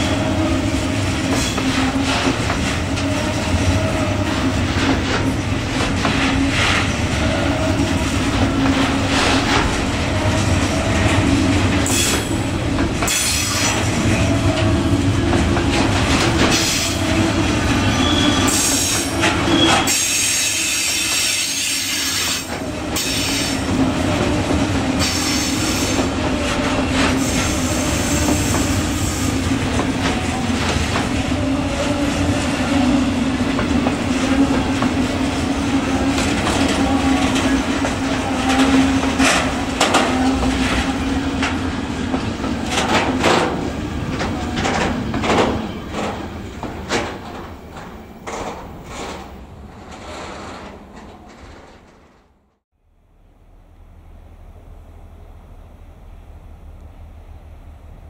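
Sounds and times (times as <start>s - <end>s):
wheels clacking over rail joints: 0.0s - 52.5s
train wheels squealing: 16.5s - 23.6s, 25.0s - 26.0s.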